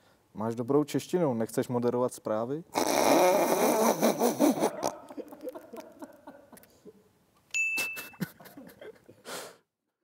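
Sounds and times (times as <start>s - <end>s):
person chuckling: 3.4s - 7.1s, 7.8s - 9.4s
short electronic ding: 7.6s - 8.2s.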